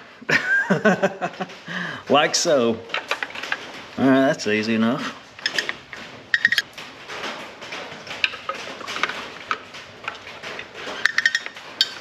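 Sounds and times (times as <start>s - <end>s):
screwdriver metal clinks: 5.4s - 6.6s.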